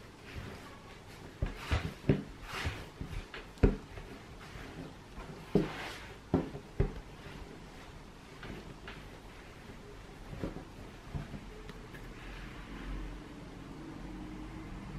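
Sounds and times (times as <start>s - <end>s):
soft rubbing and rustling: 0.0s - 13.2s
dough thumping on wood: 0.2s - 11.7s.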